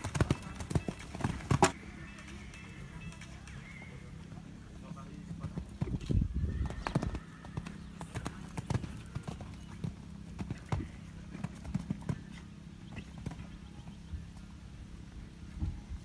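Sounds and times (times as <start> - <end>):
horse hooves cantering on sand: 0.0 - 3.2, 5.2 - 14.5.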